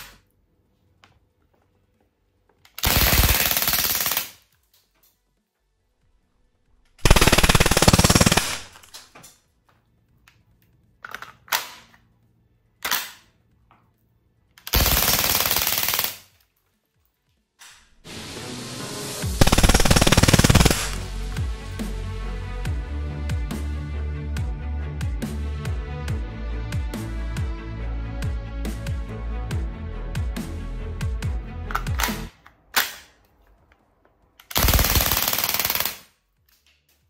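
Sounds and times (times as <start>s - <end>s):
airgun firing automatic bursts: 2.8s - 4.4s, 7.0s - 8.9s, 14.7s - 16.3s, 19.4s - 21.1s, 34.5s - 36.1s.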